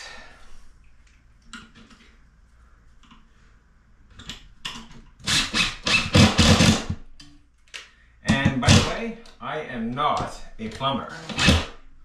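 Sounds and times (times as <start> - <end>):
cordless drill driving screw: 5.2 - 6.9, 11.2 - 11.7.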